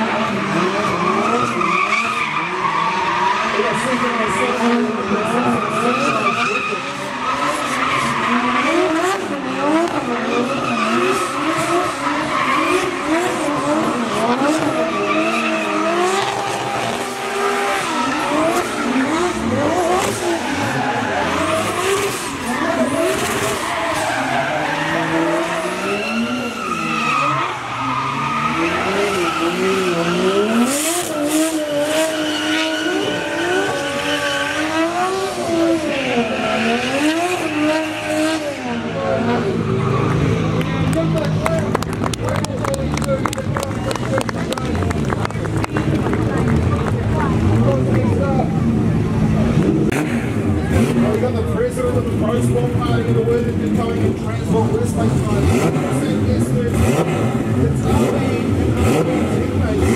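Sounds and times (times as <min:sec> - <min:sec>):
car engine revving hard: 0:00.0 - 0:59.9
tyres squealing and hissing: 0:14.8 - 0:38.3.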